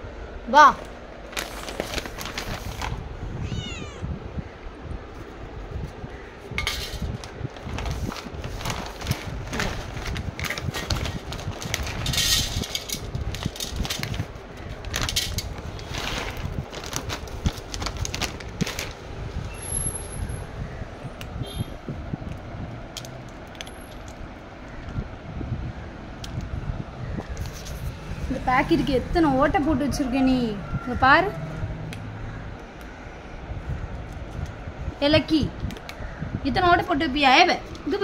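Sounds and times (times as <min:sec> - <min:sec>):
plastic bag crinkling: 0:01.2 - 0:03.1, 0:07.2 - 0:19.1
cat meowing: 0:03.2 - 0:04.2.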